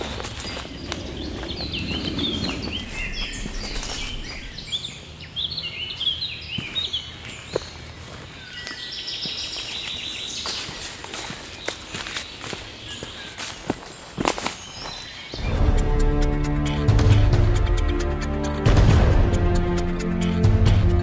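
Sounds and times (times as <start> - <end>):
footfalls on earth path: 0.0 - 4.8, 6.6 - 15.5
rapid trilled birdsong: 0.0 - 16.9
songbirds chirping: 0.0 - 16.9.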